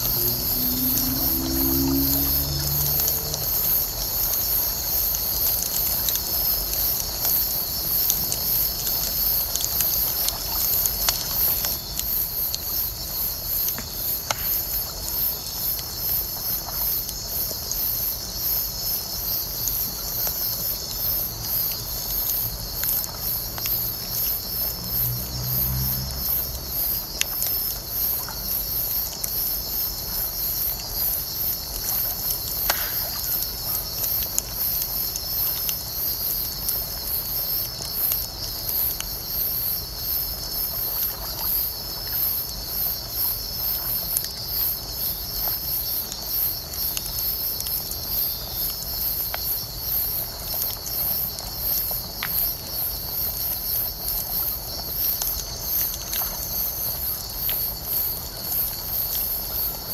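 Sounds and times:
low rumble: 0.0s - 3.7s
night insects chirping: 0.0s - 59.9s
bonfire crackling and popping: 0.1s - 17.8s, 26.3s - 41.0s.

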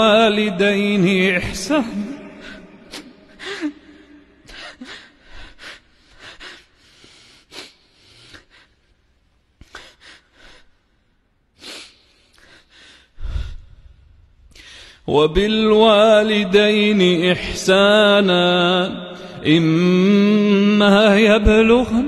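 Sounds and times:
quran recitation: 0.0s - 4.8s, 14.8s - 22.0s
man sobbing: 1.5s - 5.6s.

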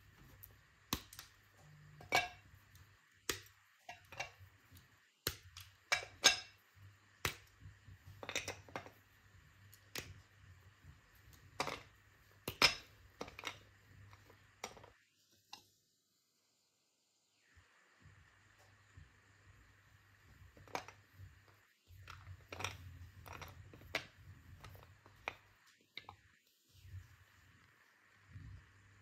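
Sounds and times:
chocolate bar snapping: 0.9s - 1.4s, 5.2s - 6.2s, 7.2s - 7.6s, 9.7s - 10.2s, 11.6s - 14.9s.

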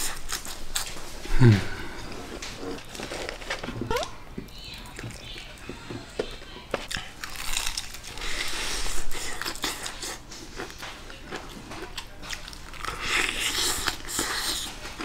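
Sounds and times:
crunchy chewing of fried chicken: 6.8s - 15.0s.

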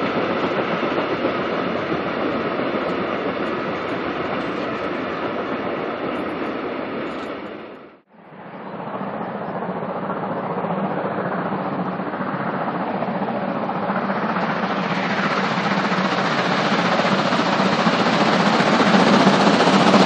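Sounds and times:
steam locomotive exhaust beats: 13.7s - 20.0s.

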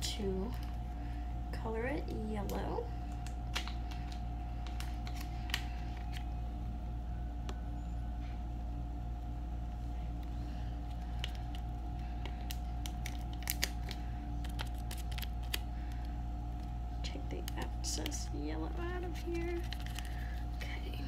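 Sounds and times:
steady low hum: 0.0s - 21.0s
plastic packet crinkling: 3.1s - 6.3s, 10.9s - 16.1s, 17.4s - 20.6s.

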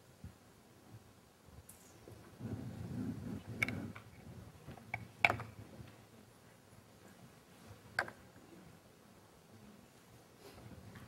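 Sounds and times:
soft low rumble: 2.1s - 4.7s.

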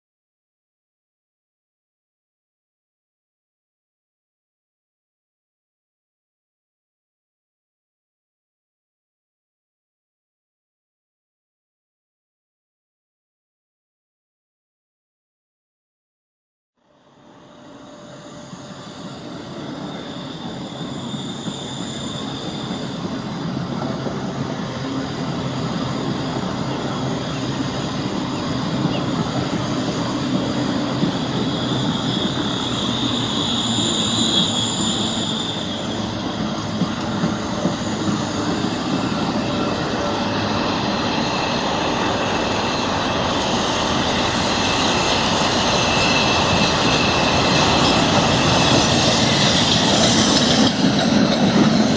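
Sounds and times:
high wheel squeals: 17.0s - 51.9s
train wheels rumbling on rails: 17.3s - 51.9s.

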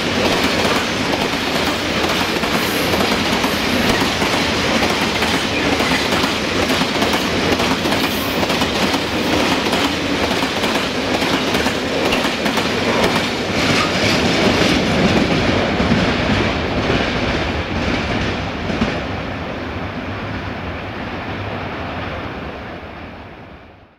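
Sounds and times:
train wheels clacking over rail joints: 0.0s - 19.0s.

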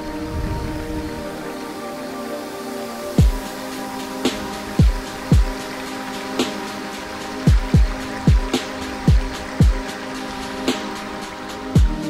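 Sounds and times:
background music with steady beat: 0.0s - 12.0s
sharp snap: 4.3s - 4.6s.

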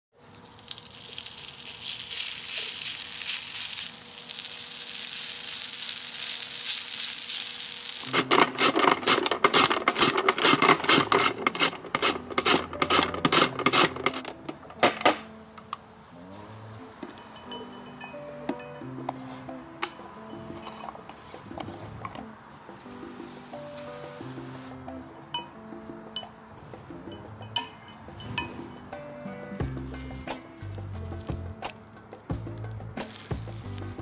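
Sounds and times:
potato sizzling in hot oil: 0.3s - 8.1s
potato rasping on slicer blades: 8.5s - 14.2s.

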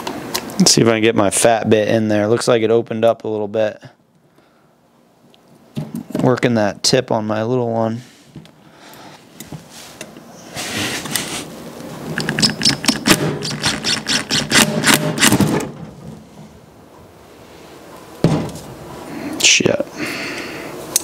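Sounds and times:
impact driver rattling: 12.2s - 15.8s.

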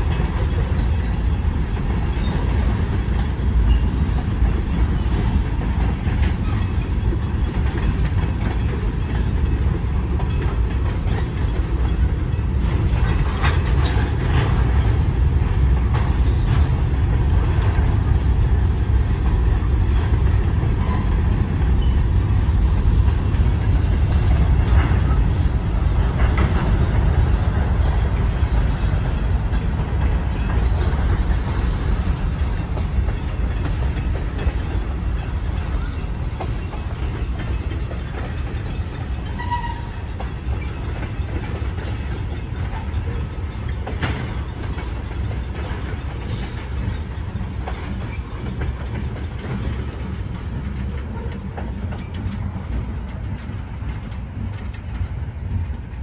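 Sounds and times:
freight train rumbling over rails: 0.0s - 56.0s
train wheel clicks and clanks: 0.0s - 56.0s.

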